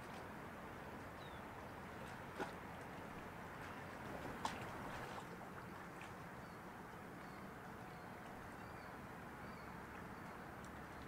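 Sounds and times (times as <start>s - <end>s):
faint outdoor rumble and hiss: 0.0s - 11.0s.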